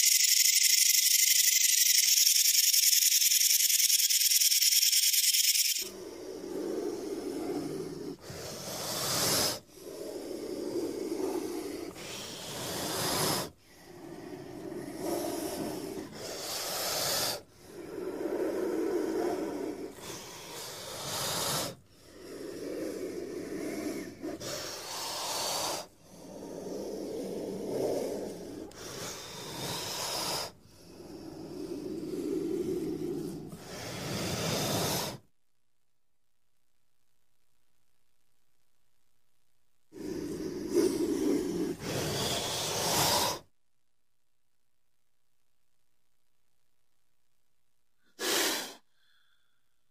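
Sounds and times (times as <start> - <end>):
snake hissing: 0.0 - 35.2, 39.9 - 43.5, 48.1 - 49.3
soft low breath: 5.9 - 35.3, 39.9 - 43.5, 48.0 - 49.9.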